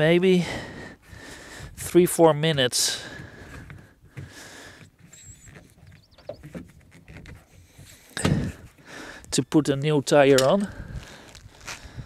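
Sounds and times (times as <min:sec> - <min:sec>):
tyre rubbing and scraping on rim: 0:03.4 - 0:08.9.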